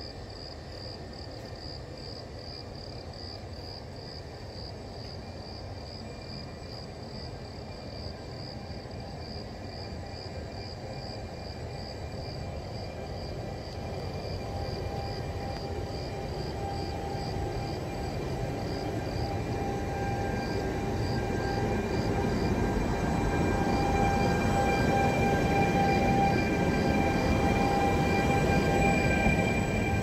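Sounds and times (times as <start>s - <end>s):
faint steady whine: 0.0s - 30.0s.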